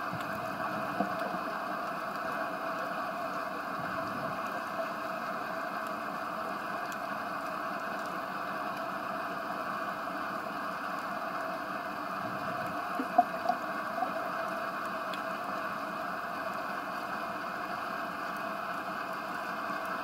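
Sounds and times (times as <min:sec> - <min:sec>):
muffled underwater hiss: 0:00.0 - 0:10.6, 0:11.2 - 0:19.9
faint clicks: 0:07.9 - 0:08.9.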